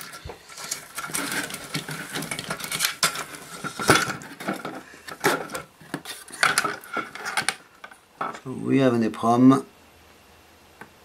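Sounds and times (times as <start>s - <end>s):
circuit boards clicking and clattering: 0.0s - 8.4s.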